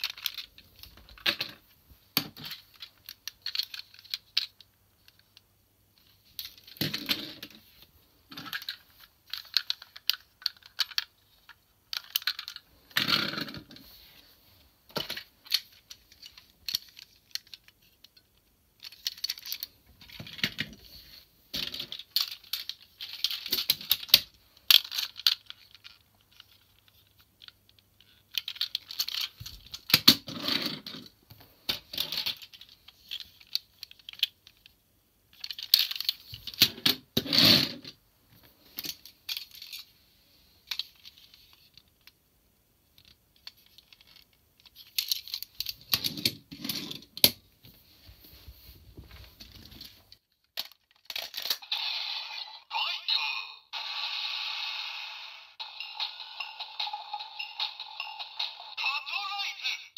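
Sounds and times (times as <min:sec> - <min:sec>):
plastic toy vehicles rattling: 0:00.0 - 0:01.6, 0:02.2 - 0:05.4, 0:06.0 - 0:14.0, 0:14.9 - 0:20.9, 0:21.5 - 0:38.0, 0:42.9 - 0:47.4, 0:49.4 - 0:51.7.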